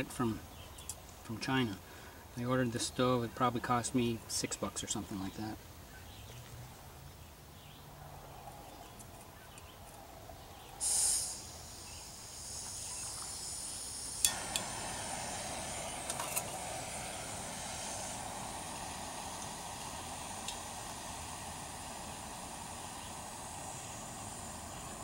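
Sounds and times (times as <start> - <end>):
gas hissing from stove: 10.4 - 25.0
metal cup clinking: 14.2 - 14.7, 16.0 - 16.6
stove igniter click: 14.2 - 15.1, 19.2 - 20.9.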